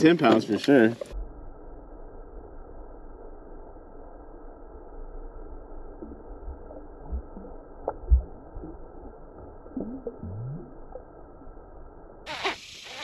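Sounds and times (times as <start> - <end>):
water sloshing and gurgling: 0.0 - 1.2, 5.6 - 13.0.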